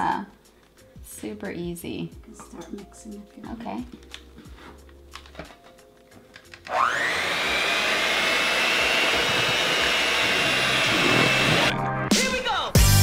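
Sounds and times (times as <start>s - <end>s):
electric hand mixer whine: 6.7s - 11.8s
beaters whisking batter: 7.2s - 11.7s.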